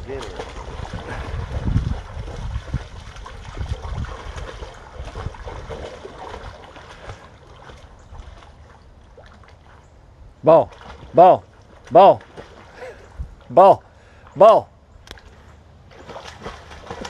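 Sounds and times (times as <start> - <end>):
wind rumble on microphone: 0.0 - 6.6, 13.1 - 13.5
dog splashing in water: 0.1 - 9.8, 10.7 - 12.7, 15.2 - 17.0.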